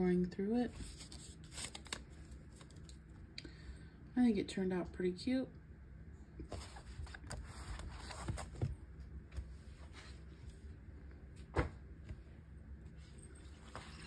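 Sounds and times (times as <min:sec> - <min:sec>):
books handled on wooden desk: 0:06.5 - 0:10.2.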